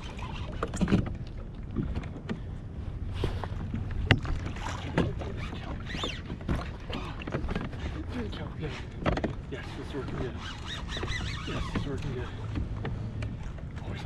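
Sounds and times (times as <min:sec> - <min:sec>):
water wash: 0:00.0 - 0:01.9
wind: 0:00.0 - 0:14.0
high squeak: 0:05.8 - 0:06.3, 0:10.3 - 0:12.0.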